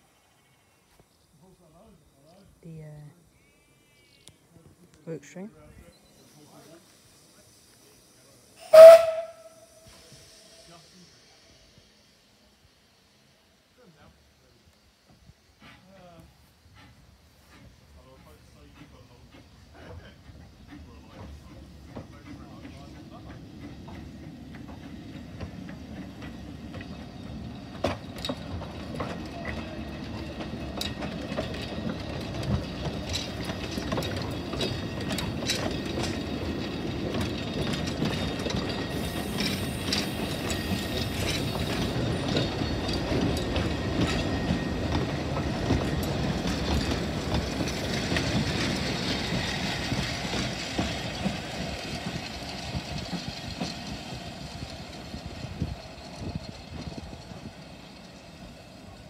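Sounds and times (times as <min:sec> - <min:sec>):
train coaches rumbling: 0:04.4 - 0:59.0
wheels clicking over rail joints: 0:15.1 - 0:59.0.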